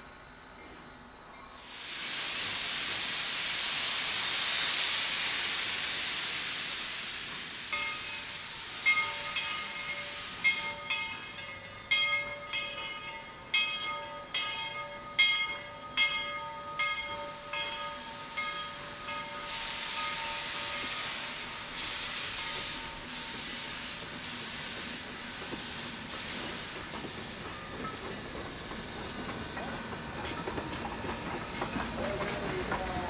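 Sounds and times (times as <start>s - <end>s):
steam locomotive hissing: 1.4s - 13.6s, 16.7s - 33.0s
locomotive bell ringing: 7.7s - 20.9s.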